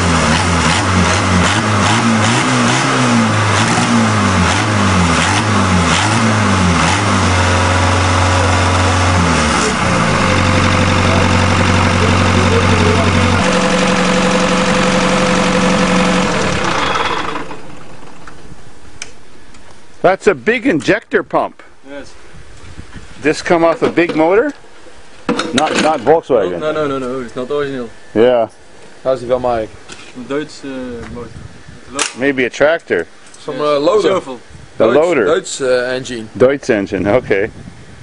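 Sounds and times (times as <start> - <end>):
diesel engine revving: 0.0 - 18.4.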